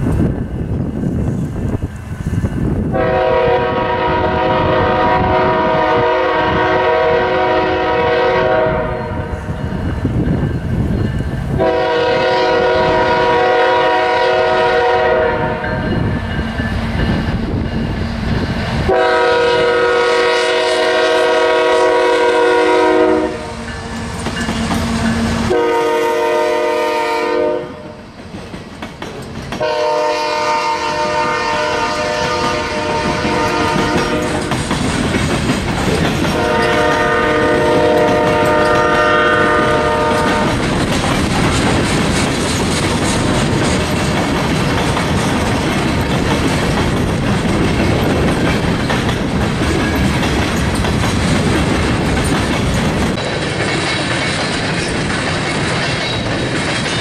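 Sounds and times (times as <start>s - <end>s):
train rumble and clickety-clack: 0.0s - 57.0s
locomotive air horn blasts: 2.9s - 9.3s, 11.6s - 15.8s, 18.9s - 23.6s, 24.9s - 28.0s, 29.6s - 34.5s, 36.3s - 40.6s.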